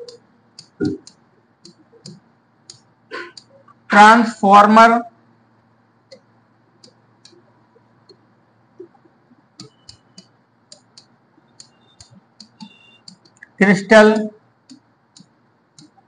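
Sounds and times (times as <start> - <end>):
marker squeaking: 8.8 - 13.5.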